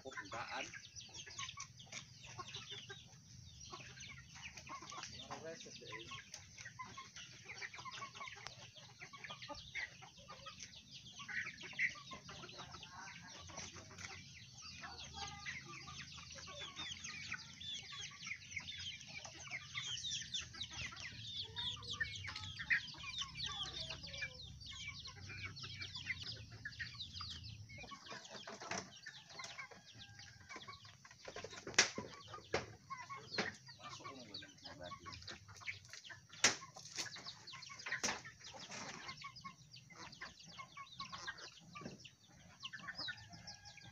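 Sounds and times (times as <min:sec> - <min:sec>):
chickens clucking: 0:00.0 - 0:43.9.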